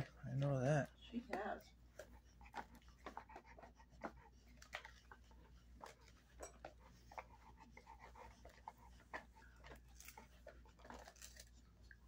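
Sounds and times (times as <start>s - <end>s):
dog chewing: 0.0s - 12.0s.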